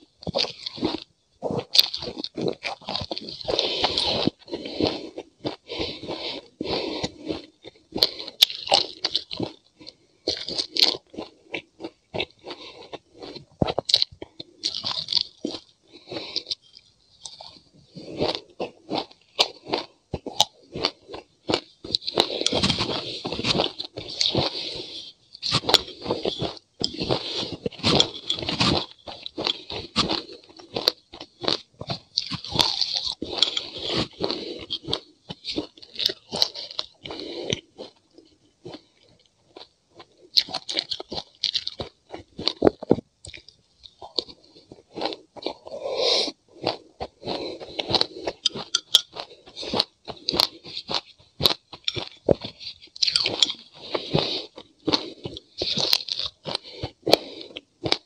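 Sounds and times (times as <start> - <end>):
crunching and chewing: 0.0 - 58.0
metal spoon scraping glass mug: 48.7 - 49.1.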